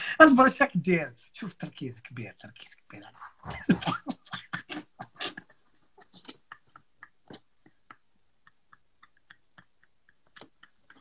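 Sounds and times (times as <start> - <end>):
faint irregular clicks and ticks: 4.3 - 11.0.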